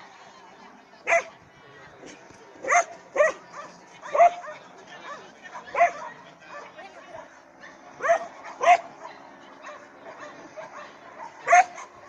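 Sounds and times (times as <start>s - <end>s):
dog barking: 1.1s - 1.3s, 2.6s - 6.7s, 8.0s - 12.0s.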